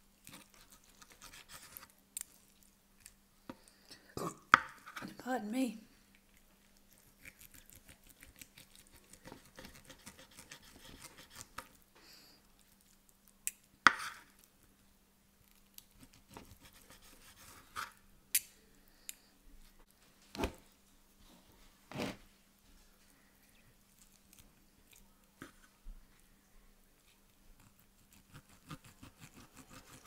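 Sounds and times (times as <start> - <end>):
knife sawing through steak: 9.5 - 11.5, 28.1 - 30.0.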